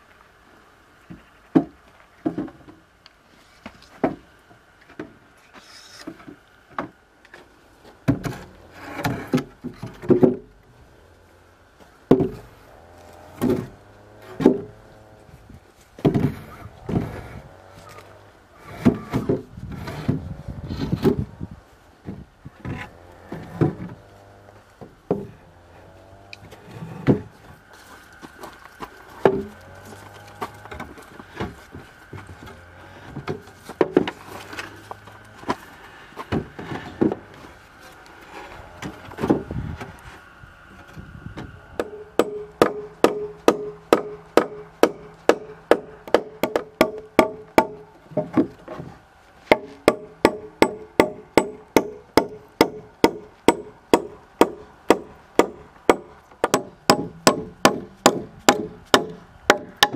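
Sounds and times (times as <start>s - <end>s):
hand tool striking wood: 12.1s - 12.5s, 29.2s - 29.5s, 33.2s - 34.7s, 41.8s - 48.9s, 49.5s - 59.9s
wood being handled: 40.9s - 59.9s.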